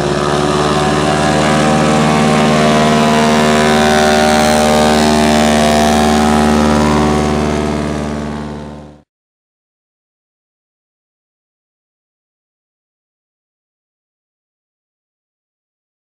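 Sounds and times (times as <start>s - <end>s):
propeller plane engine droning: 0.0s - 9.0s.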